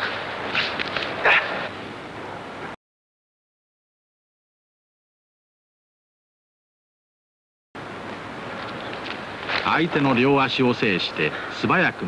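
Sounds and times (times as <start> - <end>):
analogue recording hiss: 0.0 - 2.8, 7.8 - 12.0.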